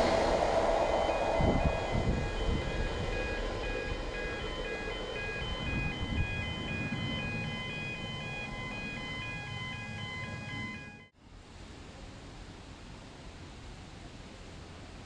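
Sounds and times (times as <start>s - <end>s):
diesel locomotive engine rumbling: 0.0s - 11.1s
electronic beeping tune: 0.8s - 11.1s.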